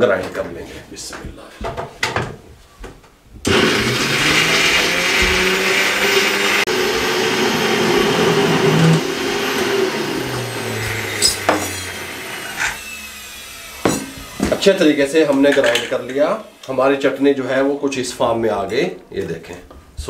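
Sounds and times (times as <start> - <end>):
electric blender grinding: 3.5 - 17.1.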